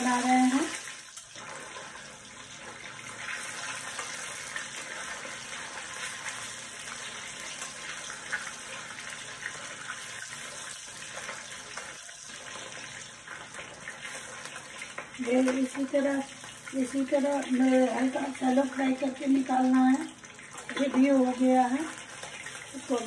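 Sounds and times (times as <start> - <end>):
fish frying in oil: 0.0 - 23.0
small crackles of oil: 0.0 - 23.0.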